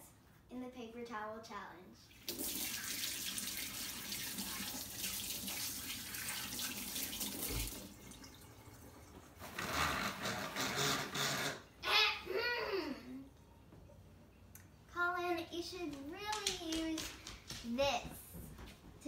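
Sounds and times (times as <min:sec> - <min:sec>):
faucet running into sink: 0:02.2 - 0:09.5.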